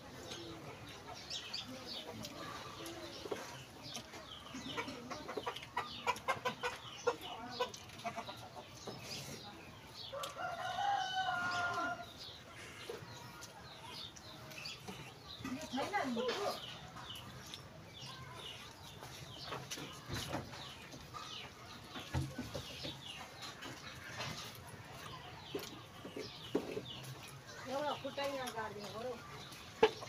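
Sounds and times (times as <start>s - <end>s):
chickens clucking: 0.0s - 30.0s
wet chewing clicks: 0.2s - 30.0s
rooster crowing: 10.1s - 12.0s.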